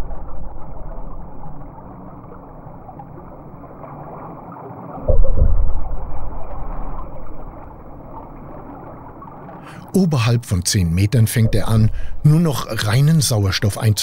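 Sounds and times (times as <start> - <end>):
underwater hiss and rumble: 0.0 - 9.9, 11.3 - 14.0
gurgling rush of exhaust bubbles: 11.5 - 12.8.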